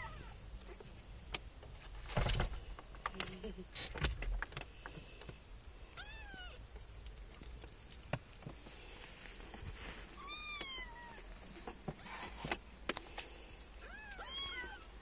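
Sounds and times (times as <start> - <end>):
kitten meowing: 0.0 - 0.4, 6.0 - 6.6, 10.2 - 11.2, 13.8 - 15.0.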